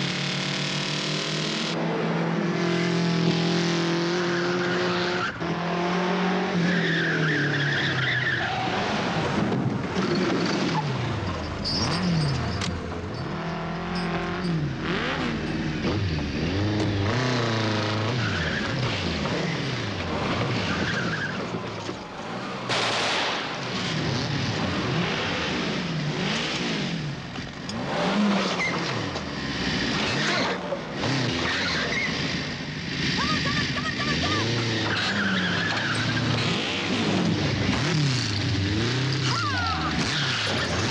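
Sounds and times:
vehicle engines revving: 0.0 - 40.9
tyre squeals and skidding: 4.0 - 5.6, 6.5 - 22.6, 27.7 - 40.9.

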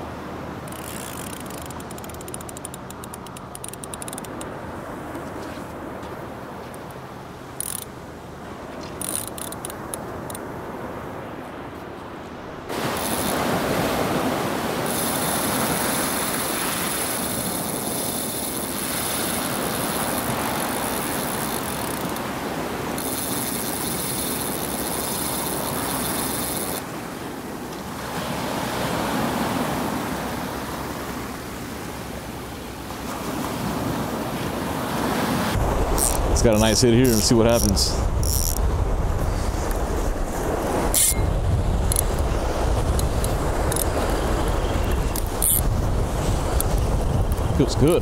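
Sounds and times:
ocean surf washing: 0.0 - 48.0.

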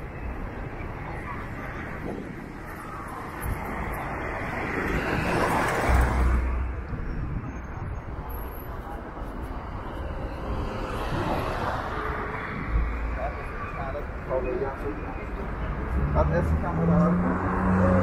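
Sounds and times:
faint voices: 0.0 - 5.6, 7.2 - 18.0
traffic rush: 0.0 - 18.0
vehicle passing: 15.7 - 18.0.

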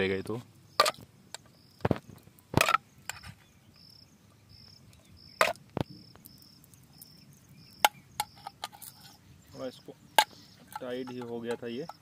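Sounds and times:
insect chirping: 0.0 - 12.0.

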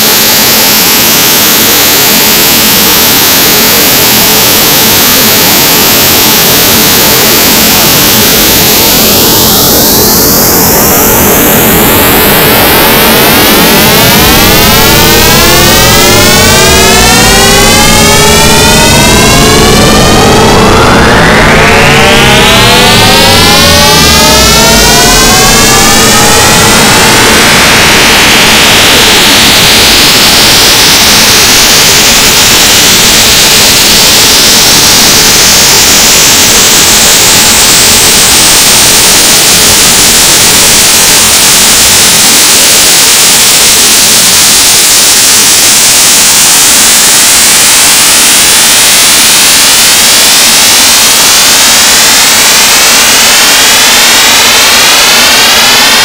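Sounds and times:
electronic noise drone: 0.0 - 56.0
rising synth sweeps: 4.5 - 32.3.

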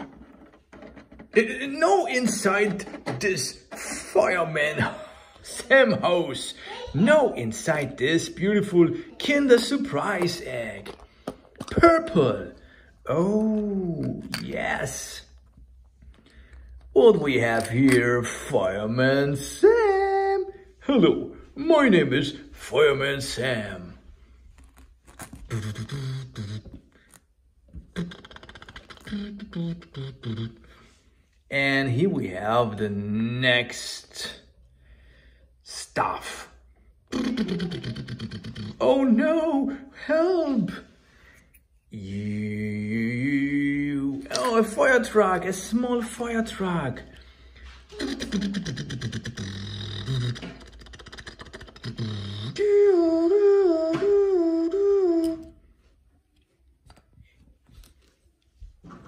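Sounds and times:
man beatboxing: 25.5 - 26.8, 27.9 - 30.6, 37.1 - 38.8, 48.0 - 55.5
man imitating engine buzz: 25.5 - 26.8
man singing two-tone siren: 52.5 - 55.6.

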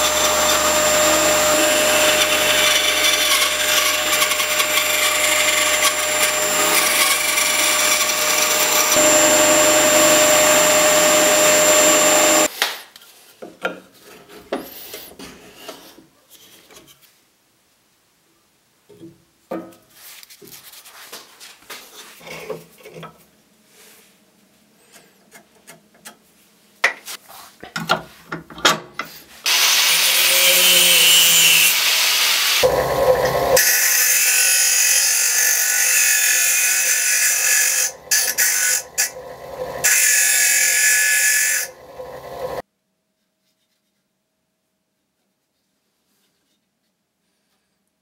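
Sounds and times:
bench grinder grinding metal: 0.0 - 12.5, 29.5 - 42.6.

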